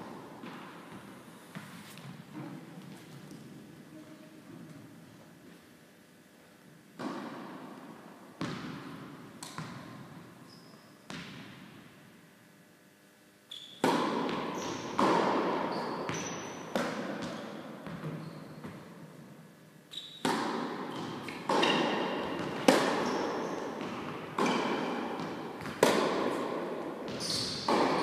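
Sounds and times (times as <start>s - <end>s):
tennis balls struck by rackets: 7.0s - 10.2s, 13.8s - 19.0s, 20.2s - 28.0s
short high squeaks: 27.2s - 27.7s.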